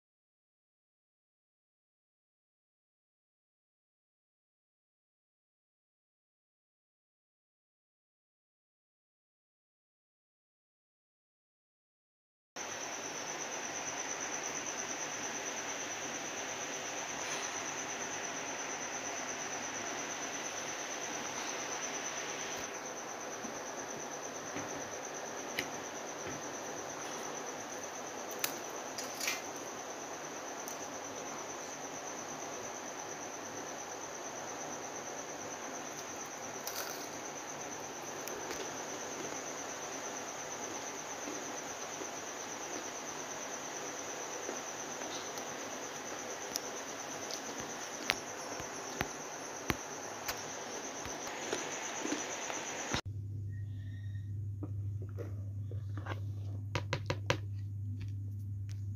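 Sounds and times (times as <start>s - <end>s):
background hiss: 12.6s - 53.0s
insect high-pitched trill: 12.6s - 55.0s.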